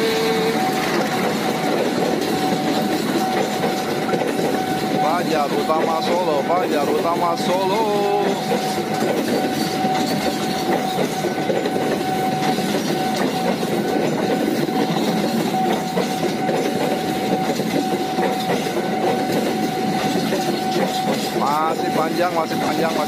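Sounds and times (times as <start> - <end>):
train wheels rumbling on rails: 0.0 - 23.0.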